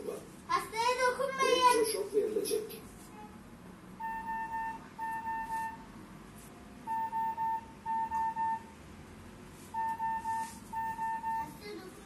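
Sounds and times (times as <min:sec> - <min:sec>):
short electronic beeps: 0:04.0 - 0:05.9, 0:06.9 - 0:08.8, 0:09.7 - 0:11.6.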